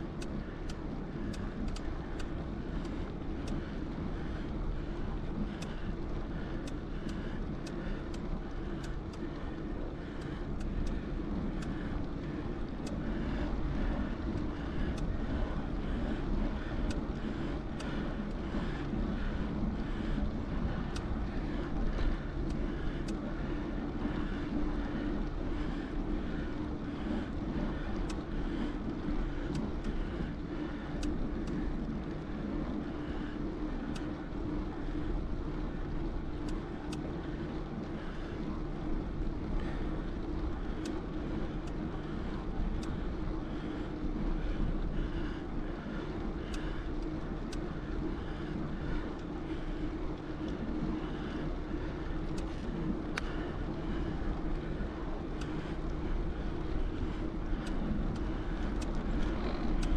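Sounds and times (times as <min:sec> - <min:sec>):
bicycle rolling on pavement: 0:00.0 - 0:59.9
wind rumbling on microphone: 0:00.0 - 0:59.9
bike clicks and rattles: 0:55.3 - 0:59.9.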